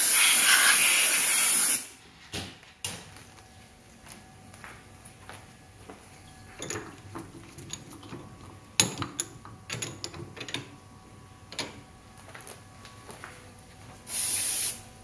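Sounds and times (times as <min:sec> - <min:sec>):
metal tools clicking and knocking: 0:06.6 - 0:10.7.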